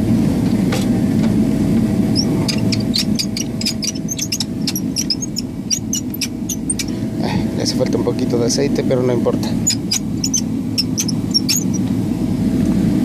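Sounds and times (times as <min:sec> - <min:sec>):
cabin air hum: 0:00.0 - 0:13.0
seat footrest squeaking: 0:02.2 - 0:07.0, 0:09.6 - 0:11.9.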